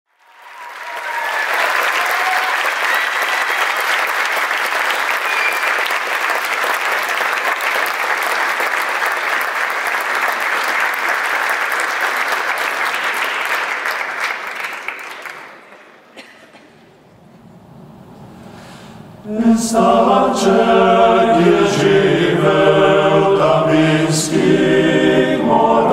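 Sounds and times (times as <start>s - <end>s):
audience applause: 0.1s - 17.2s.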